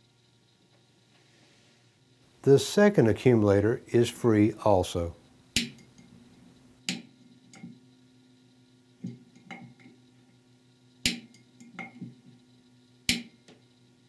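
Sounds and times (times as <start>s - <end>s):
sharp metallic valve clicks: 5.6s - 6.1s.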